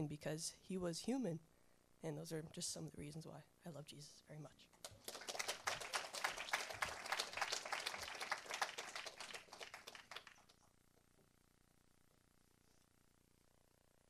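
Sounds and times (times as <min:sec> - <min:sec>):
crowd applauding: 0:04.8 - 0:10.5.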